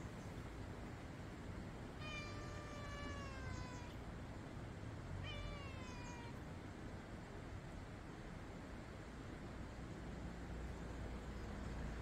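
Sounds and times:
cat meowing: 2.0 - 4.0, 5.2 - 6.4.

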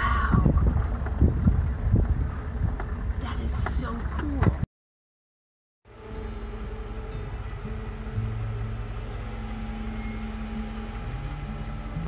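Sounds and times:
vehicle engine and road rumble: 0.0 - 4.7, 5.8 - 12.0
high-pitched whine: 5.9 - 12.0.

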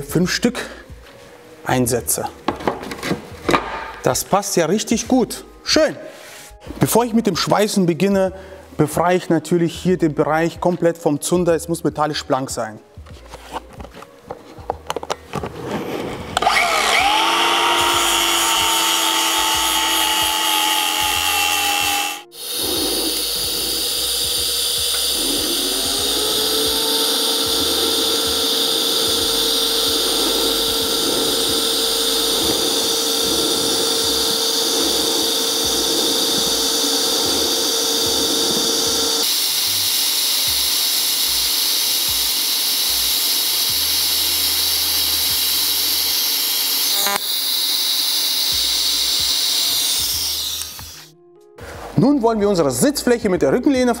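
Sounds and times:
power tool grinding metal: 16.2 - 51.1.

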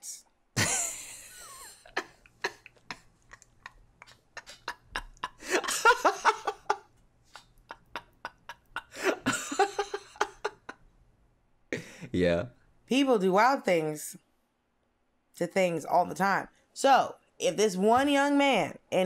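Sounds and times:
people laughing: 0.6 - 10.8.

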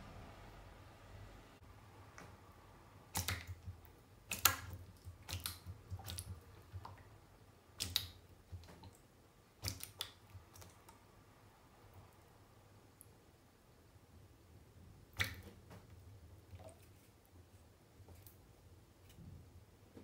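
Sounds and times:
frog jaws snapping wetly: 3.1 - 3.6, 4.3 - 6.9, 7.8 - 8.8, 9.6 - 10.8.

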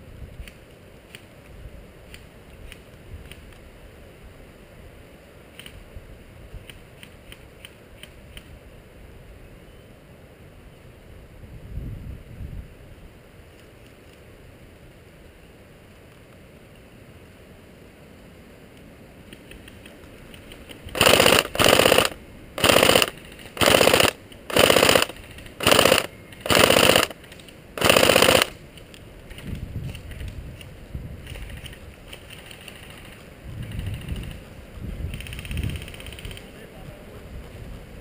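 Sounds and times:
airsoft gun firing bursts: 20.9 - 28.6.

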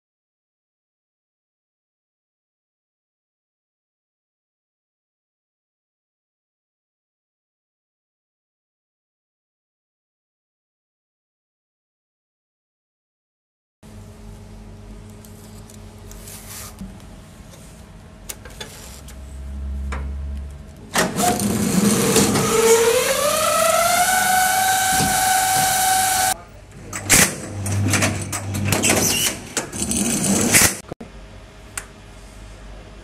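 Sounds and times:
strapping machine motor whine: 19.4 - 26.4
machine clicks and clunks: 20.9 - 22.5, 26.8 - 30.8.

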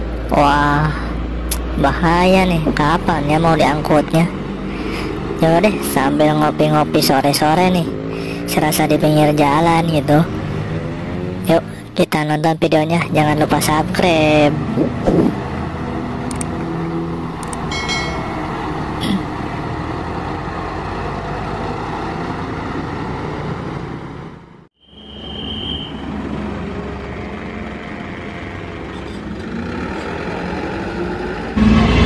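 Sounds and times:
diesel truck engines under load: 0.0 - 32.0
road traffic noise: 0.0 - 32.0
short high steady tone: 17.7 - 19.4.

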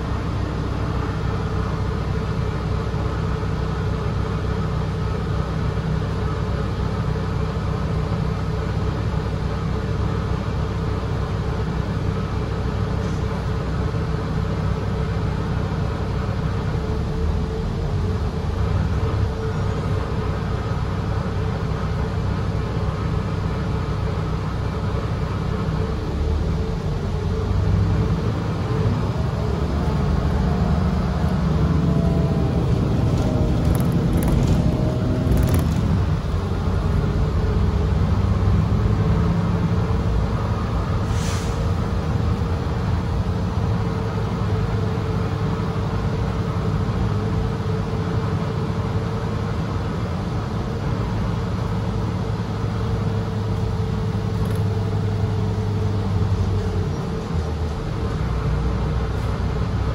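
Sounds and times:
constant hum: 0.0 - 37.8
bus engine and road rumble: 0.0 - 59.9.

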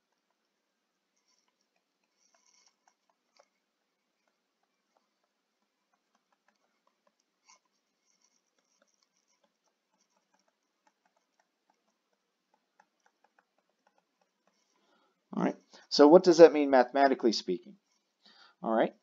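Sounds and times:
stylus tapping on tablet screen: 4.1 - 14.9.

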